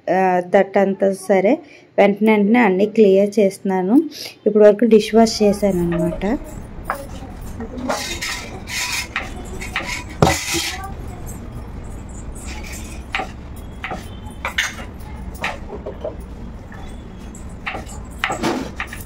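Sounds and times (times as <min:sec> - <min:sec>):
cutlery clinks: 0:05.5 - 0:19.0.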